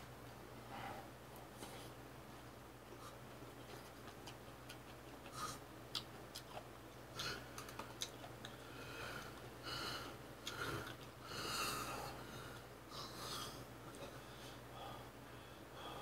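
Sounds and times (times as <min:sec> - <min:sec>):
person chewing noodles: 0:02.9 - 0:11.2.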